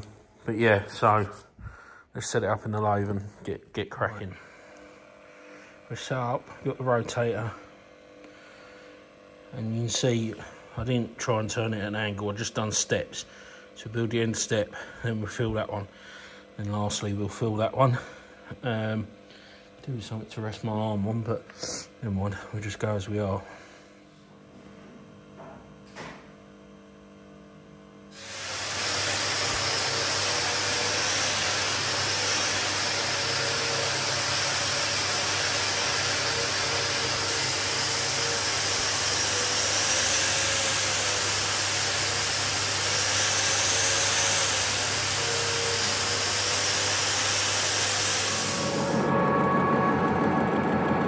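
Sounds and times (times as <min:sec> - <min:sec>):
lathe running: 0:04.2 - 0:26.0, 0:26.6 - 0:51.0
welding arc hissing: 0:28.1 - 0:49.0.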